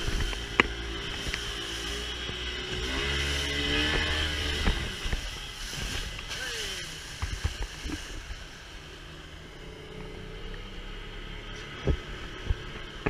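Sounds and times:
water hissing along hull: 0.0s - 8.8s
outboard motor running: 0.0s - 13.0s.

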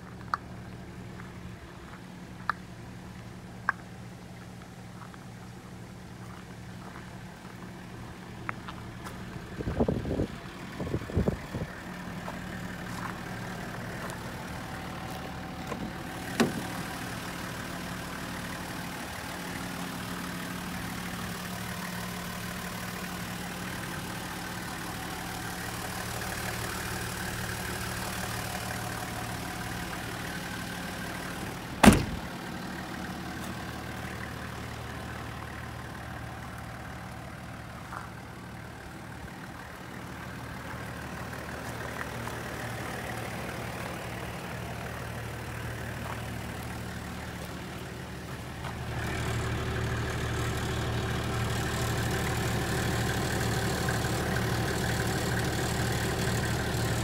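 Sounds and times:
diesel engine idling: 0.0s - 57.0s
engine knocks: 15.6s - 16.9s, 31.8s - 32.3s.

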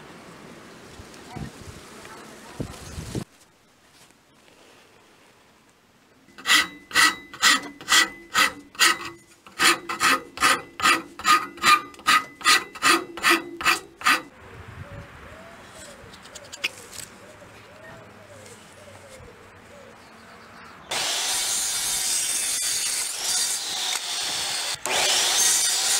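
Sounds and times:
hand file scraping wood: 6.3s - 14.3s.

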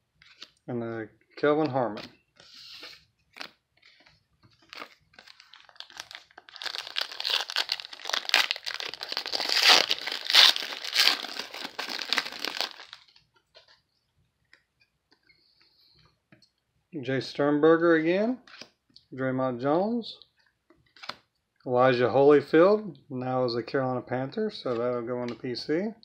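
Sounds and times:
foil wrapper crinkling and tearing: 4.5s - 13.2s.

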